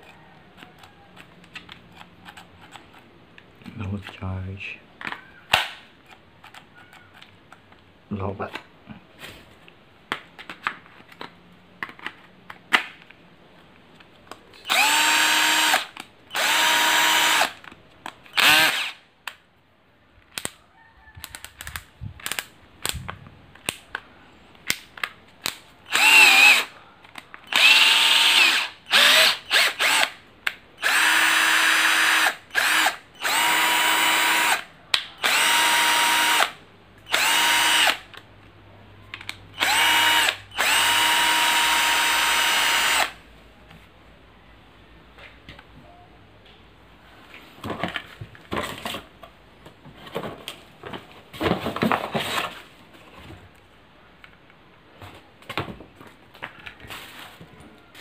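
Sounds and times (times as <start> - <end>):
cordless drill motor whirring: 14.6 - 17.6, 18.3 - 19.0, 25.9 - 26.7, 27.5 - 30.2, 30.8 - 38.1, 39.6 - 43.2.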